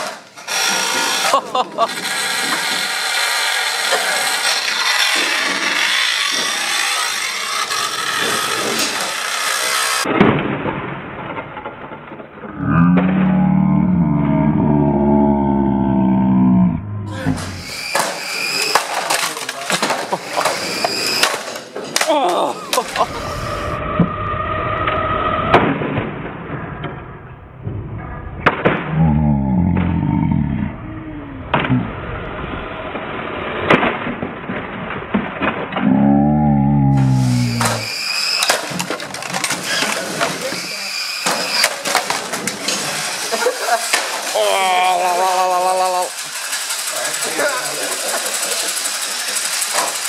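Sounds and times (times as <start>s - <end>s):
toy car motors whirring: 0.0s - 10.1s, 17.2s - 21.6s, 37.0s - 50.0s
toy cars knocking together: 17.4s - 22.9s, 37.5s - 44.4s, 45.8s - 50.0s.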